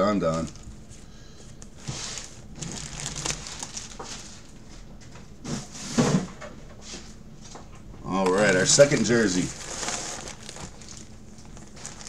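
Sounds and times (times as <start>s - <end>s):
plastic packaging rustling: 0.0s - 4.8s, 8.3s - 12.0s.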